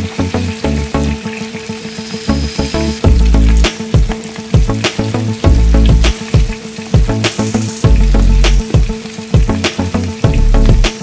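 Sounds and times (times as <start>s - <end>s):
food deep-frying in oil: 0.0s - 11.0s
music with heavy bass beat: 2.3s - 11.0s.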